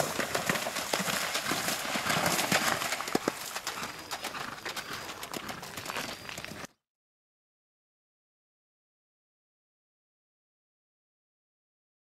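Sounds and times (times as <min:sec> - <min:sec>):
hooves splashing in water: 0:00.0 - 0:06.6.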